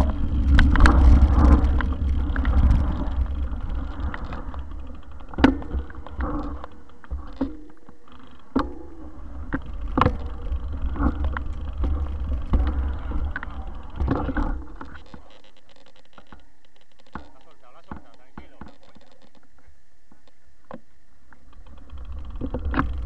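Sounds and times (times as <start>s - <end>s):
bike knocks and rattles: 0.0s - 20.8s, 21.5s - 23.0s
wind and vibration rumble: 0.0s - 23.0s.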